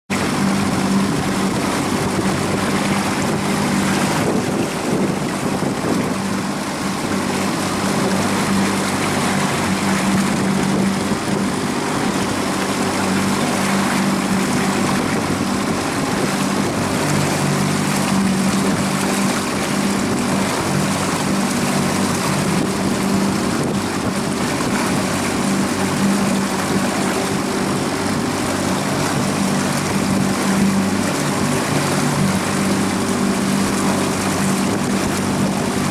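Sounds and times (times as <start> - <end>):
motorboat engine running: 0.1 - 35.9
rushing water: 0.1 - 35.9
wind noise: 0.2 - 26.0.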